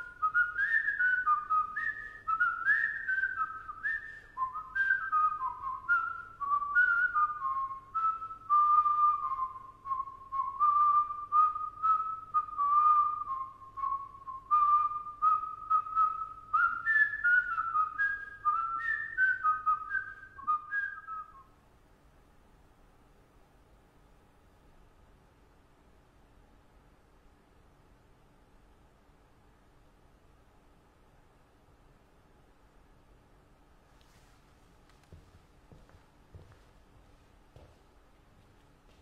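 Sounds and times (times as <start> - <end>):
man whistling a tune: 0.0 - 21.6.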